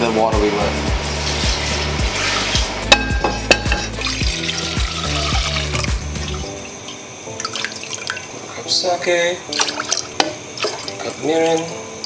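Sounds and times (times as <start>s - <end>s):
background music with steady beat: 0.0s - 12.0s
broth pouring into saucepan: 1.1s - 8.4s.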